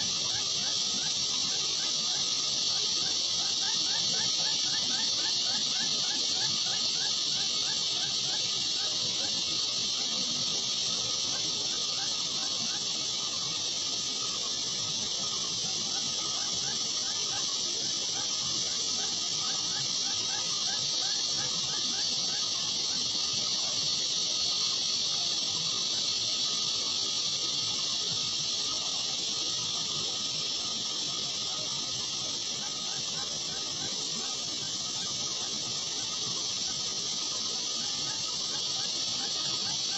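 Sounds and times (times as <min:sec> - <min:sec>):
high-pitched hiss: 0:00.0 - 0:39.9.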